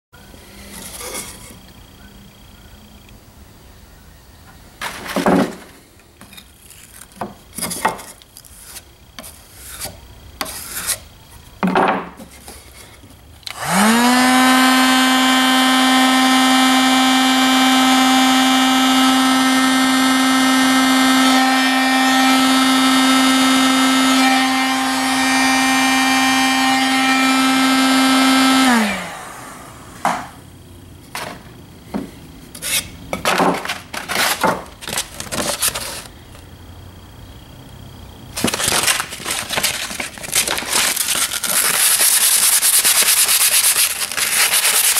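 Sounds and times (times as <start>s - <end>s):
orbital sander running: 13.5s - 30.0s, 38.4s - 44.9s.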